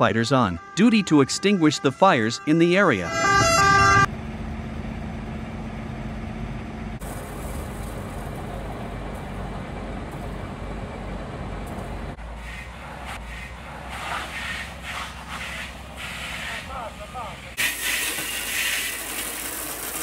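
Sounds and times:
fire engine engines rumbling: 0.0s - 19.1s
low hum: 0.1s - 13.9s
surges of hissing: 13.3s - 19.2s.

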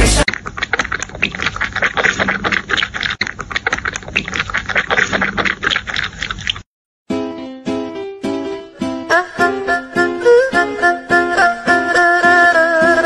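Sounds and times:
kitten suckling at a bottle: 0.3s - 6.6s.

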